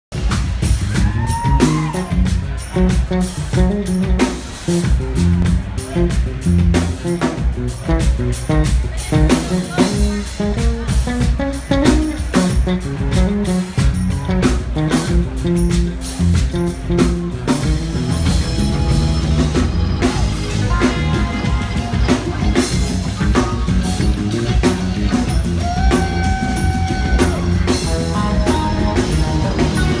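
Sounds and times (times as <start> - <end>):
electric bass line: 0.1 - 30.0
funk band playing: 0.1 - 30.0.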